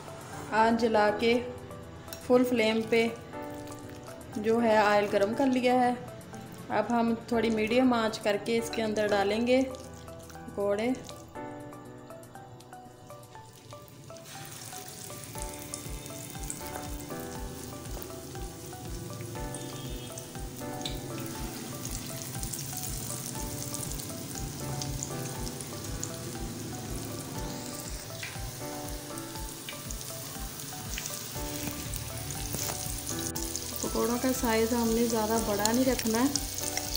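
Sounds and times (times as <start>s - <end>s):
fritters deep-frying in oil: 13.5s - 36.9s.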